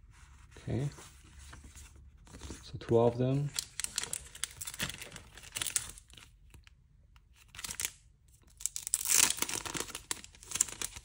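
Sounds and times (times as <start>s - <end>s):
packaging crinkling and tearing: 3.4s - 6.7s, 7.3s - 11.0s.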